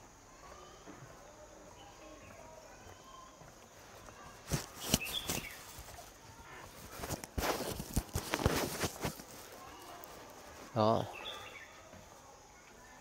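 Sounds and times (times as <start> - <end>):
faint outdoor background: 0.0 - 13.0.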